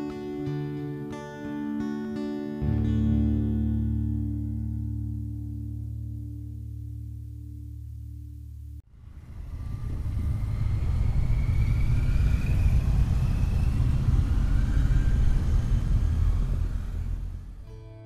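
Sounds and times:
motorcycles riding past: 8.9 - 17.7.

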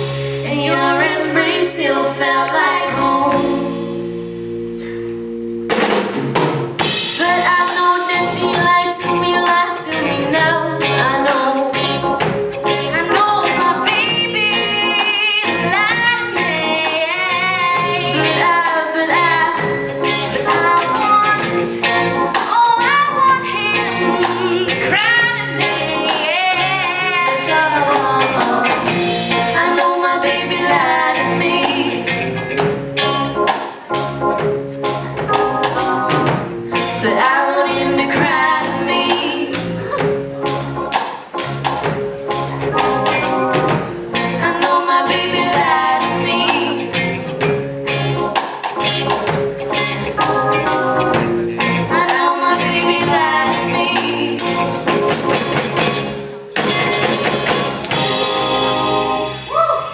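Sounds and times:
bass guitar: 0.0 - 59.9
electric guitar: 0.0 - 59.9
two women singing: 0.4 - 3.9, 7.2 - 11.9, 12.9 - 19.7, 20.4 - 32.1, 36.8 - 40.0, 44.4 - 46.9, 51.8 - 54.6
drum kit beat: 2.4 - 59.9
synthesizer organ: 19.3 - 59.9.

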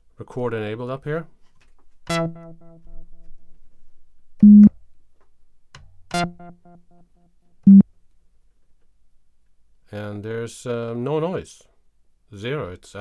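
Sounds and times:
held synthesizer note: 2.1 - 3.0, 6.1 - 7.0
plucked synthesizer notes: 2.1 - 3.2, 6.1 - 7.0.

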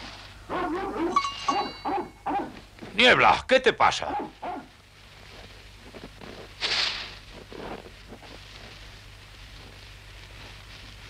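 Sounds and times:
hay rustling: 0.0 - 1.8, 4.2 - 11.0.

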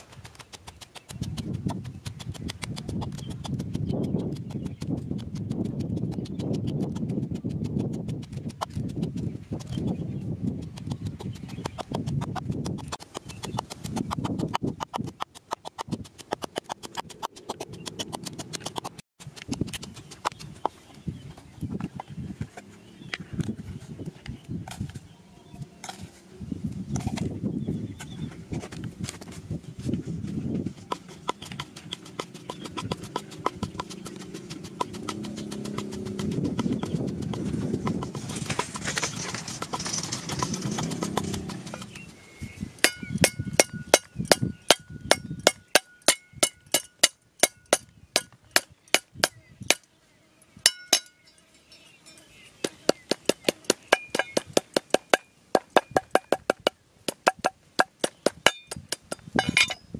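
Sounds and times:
pestle pounding in wooden mortar: 0.1 - 20.8, 30.8 - 42.0, 42.8 - 49.4, 52.6 - 59.8
cleaver chopping on wooden board: 52.6 - 59.7.

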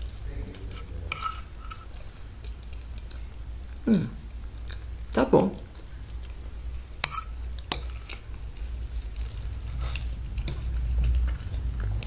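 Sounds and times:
low rumble: 8.8 - 12.0.

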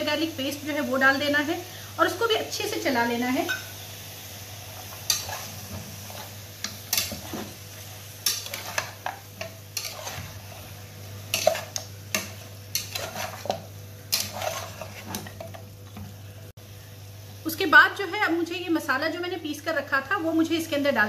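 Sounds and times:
light sizzle of frying: 0.0 - 21.0
metal spatula scraping a pot: 4.9 - 7.6, 8.2 - 15.4.

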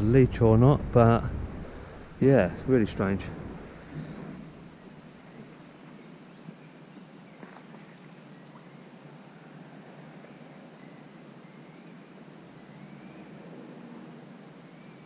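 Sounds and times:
outdoor background hiss: 0.0 - 15.0
faint bird chirps: 4.6 - 13.4.

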